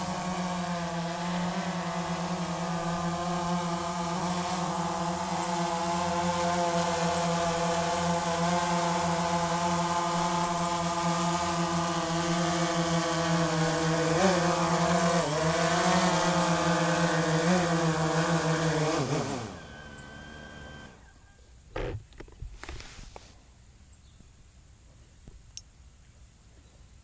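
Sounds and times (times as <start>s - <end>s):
drone propellers buzzing: 0.0s - 22.9s
short knock: 21.8s - 22.4s.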